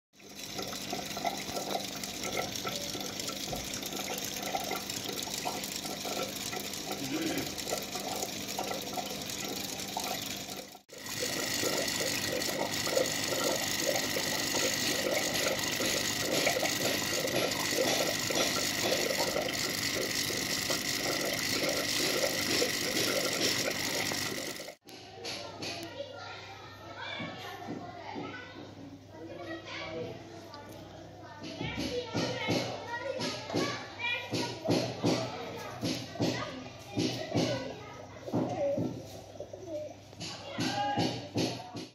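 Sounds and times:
aquarium water bubbling: 0.2s - 24.8s.

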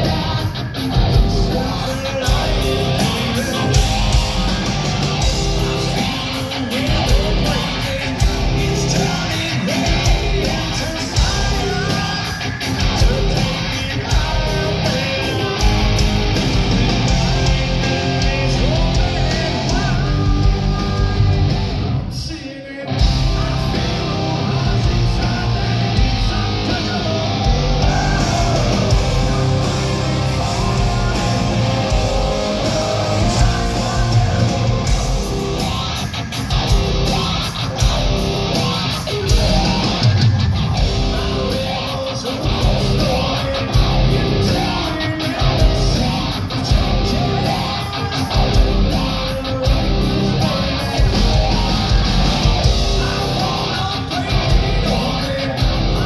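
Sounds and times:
distorted electric guitar: 0.0s - 56.0s
hard rock band playing live: 0.0s - 56.0s
sharp regular beats: 25.7s - 41.4s.

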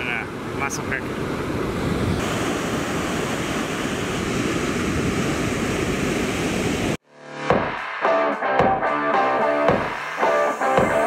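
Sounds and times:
surf breaking on sandy beach: 0.0s - 7.0s.

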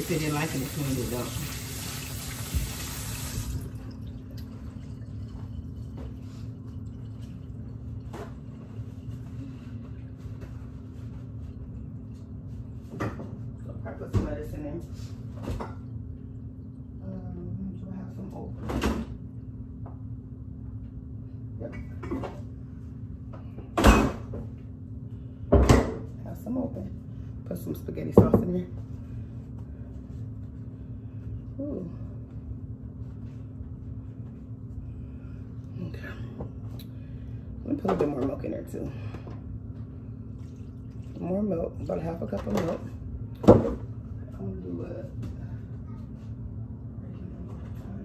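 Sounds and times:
water running from tap: 0.0s - 8.2s
steady low hum: 0.0s - 48.0s.

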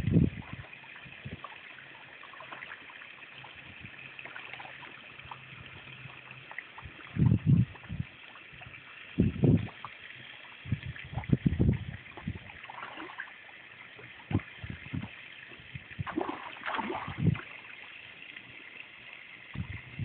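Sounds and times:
fish splashing at water surface: 12.0s - 17.9s.

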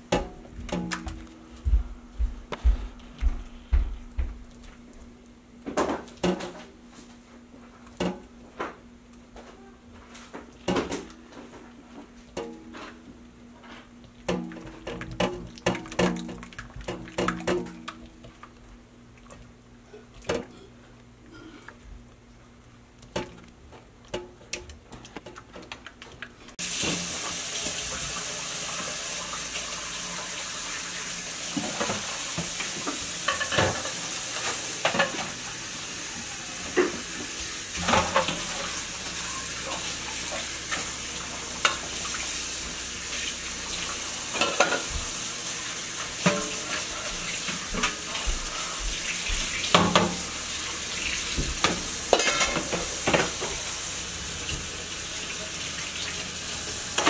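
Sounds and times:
dishes clinking: 44.3s - 44.9s, 51.6s - 53.6s.

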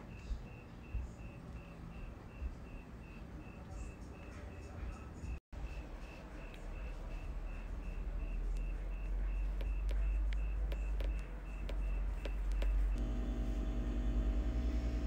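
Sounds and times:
electrical hum with low pulsing: 0.0s - 15.0s
insect chirping: 0.1s - 4.2s
sharp clicks: 9.4s - 13.1s.

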